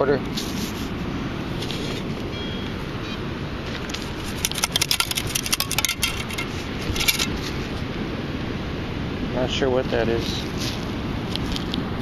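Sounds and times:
sand rattling through metal scoop: 4.2 - 7.4.

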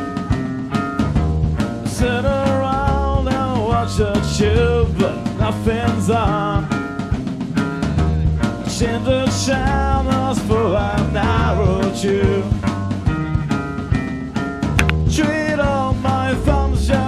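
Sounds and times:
band playing: 0.0 - 17.0
drums steady beat: 0.0 - 17.0
person singing: 2.0 - 6.7.

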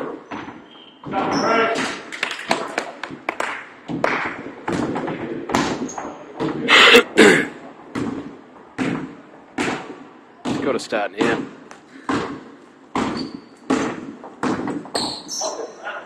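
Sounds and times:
basketball bouncing on hardwood: 7.9 - 15.3
feet landing on hardwood court: 7.9 - 15.3.

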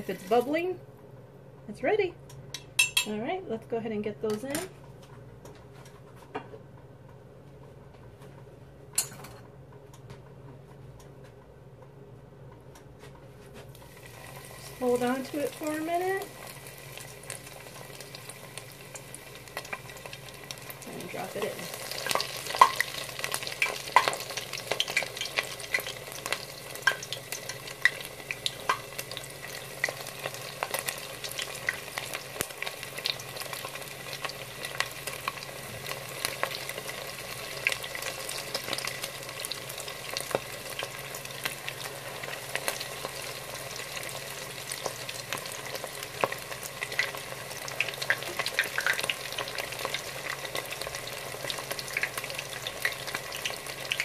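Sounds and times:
fish deep-frying in hot oil: 0.0 - 0.7, 13.8 - 54.0.

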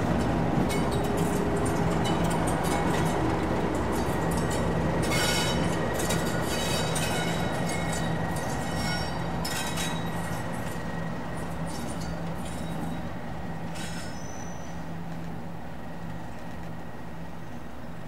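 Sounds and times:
diesel locomotive engine running: 0.0 - 18.0
wheel squeals on rails: 4.2 - 10.8, 11.5 - 14.9.

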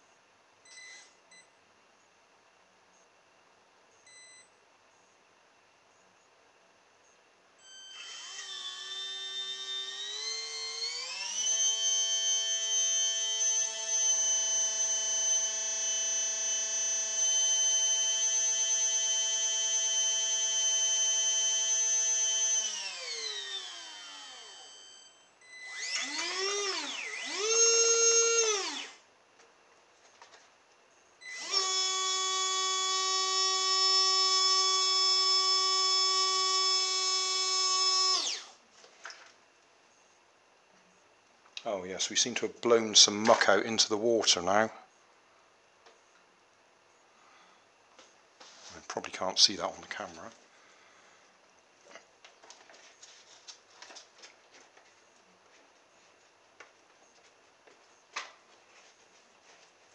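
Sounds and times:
small water pump motor whining: 7.6 - 29.1, 31.2 - 39.4.

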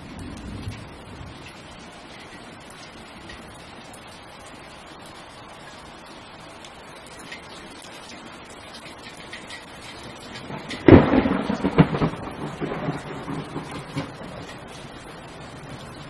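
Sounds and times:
thunderclap rumbling: 0.0 - 2.3, 10.1 - 16.0
steady rain hiss: 0.0 - 16.0.

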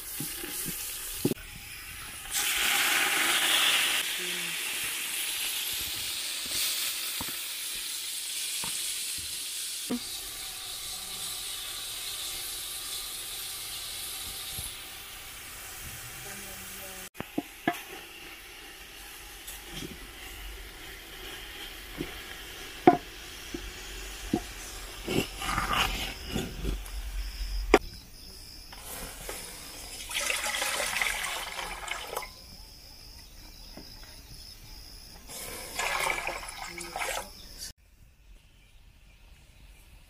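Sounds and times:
greens sizzling in a pot: 0.0 - 27.4, 28.7 - 32.6, 35.2 - 37.8
wooden stick scraping a pot: 19.4 - 27.0.

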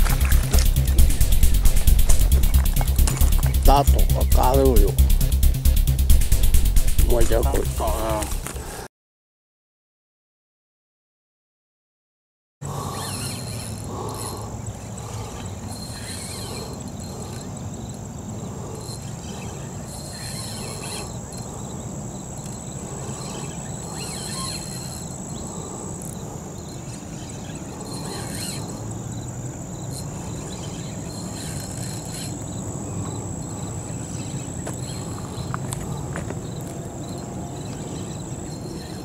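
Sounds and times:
hazy high buzzing: 0.0 - 8.5
insects chirping: 0.0 - 8.8, 12.6 - 39.0.

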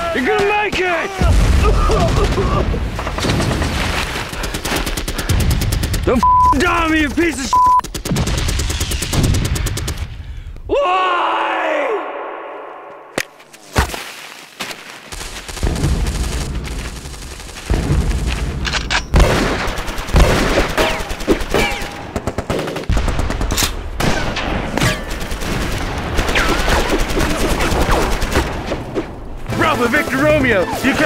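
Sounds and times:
machine-gun fire bursts: 4.3 - 6.2, 6.8 - 10.1, 19.2 - 24.1, 25.0 - 28.7.

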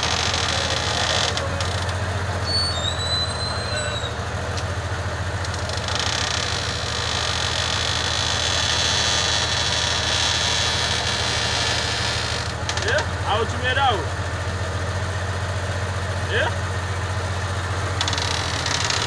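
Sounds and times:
crane engine humming: 0.0 - 19.0
short high whistle-like tone: 2.5 - 4.2.

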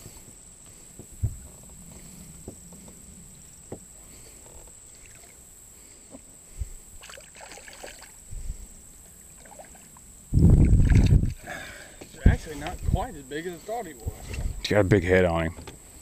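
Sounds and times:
faint high whine: 0.0 - 16.0
fish splashing at water surface: 7.0 - 8.2.

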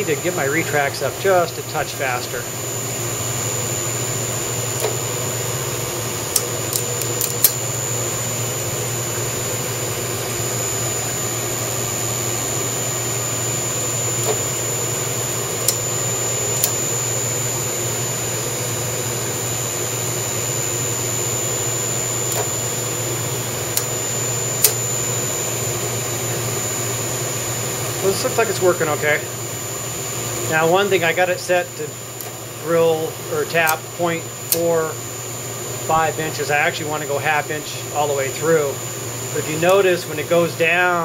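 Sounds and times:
motor hum with high whine: 0.0 - 41.0
sharp clicks: 6.3 - 7.6, 15.6 - 15.8, 24.6 - 24.8.

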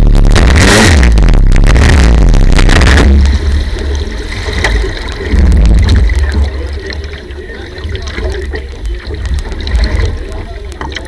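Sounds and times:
loud boat engine: 0.0 - 11.0
low rumble: 0.0 - 11.0
water sloshing against hull: 2.9 - 11.0.

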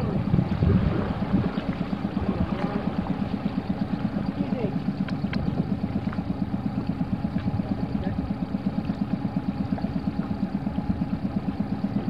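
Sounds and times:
outboard motor idling: 0.0 - 12.0.

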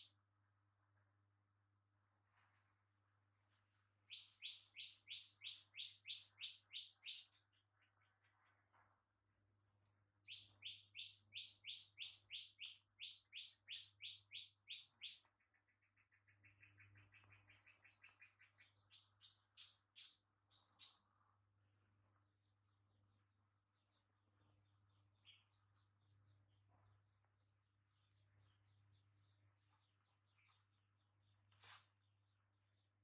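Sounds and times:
bird trill: 4.1 - 8.1, 9.3 - 21.1
faint low hum: 14.6 - 33.0.

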